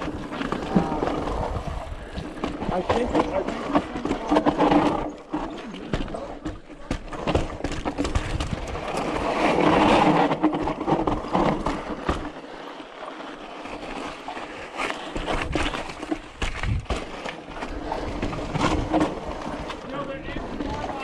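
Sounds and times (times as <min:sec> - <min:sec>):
bike tyres rolling over rock: 0:00.0 - 0:21.0
bike rattling and knocking: 0:02.0 - 0:12.4, 0:14.8 - 0:21.0.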